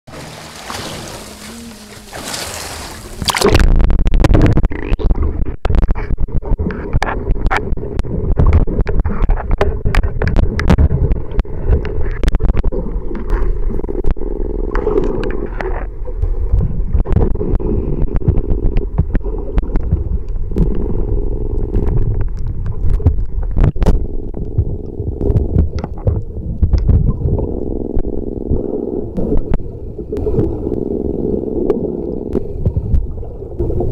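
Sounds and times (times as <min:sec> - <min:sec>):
wind: 0:00.1 - 0:05.0
underwater water rumble: 0:00.1 - 0:33.9.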